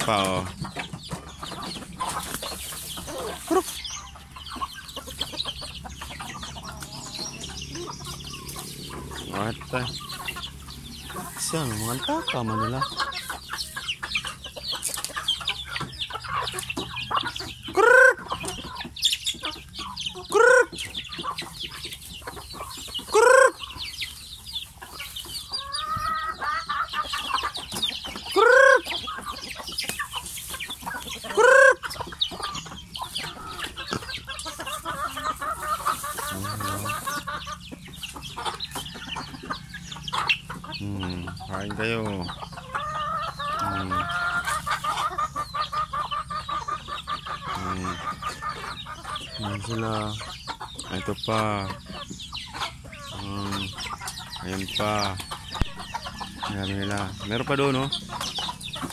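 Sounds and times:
chickens clucking: 0.0 - 58.9
loud short chicken calls: 23.0 - 23.8, 28.3 - 29.2, 31.2 - 32.6.

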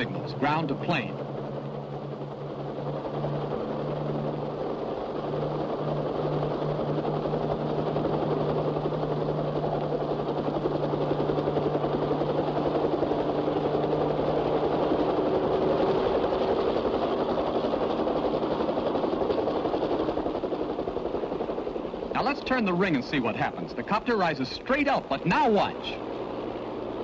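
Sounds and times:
model helicopter engine and rotors: 0.0 - 27.0.

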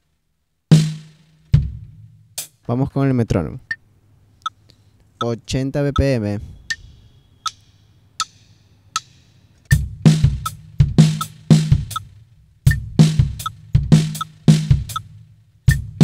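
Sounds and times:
drum kit playing groove: 0.7 - 2.6, 6.7 - 16.0
metronome clicking: 5.2 - 9.8, 11.1 - 12.1, 13.4 - 15.1.

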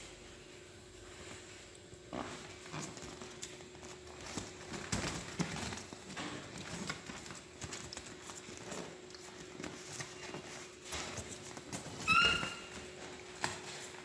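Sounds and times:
monkey tapping and rubbing on plastic: 2.1 - 14.0.

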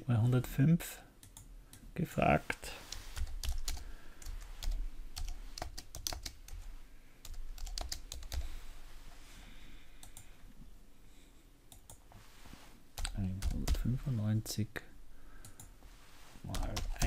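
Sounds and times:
keyboard typing: 2.9 - 6.6, 7.2 - 8.5, 13.0 - 13.9, 16.5 - 17.0.

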